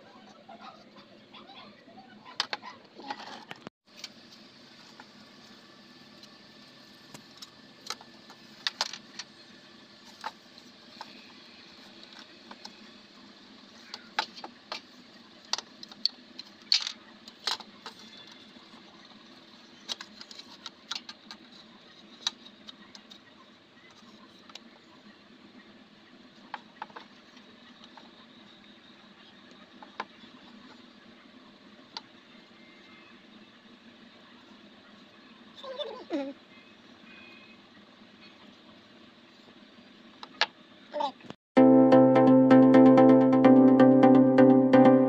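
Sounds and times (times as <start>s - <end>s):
faint steady hum: 3.4s - 45.0s.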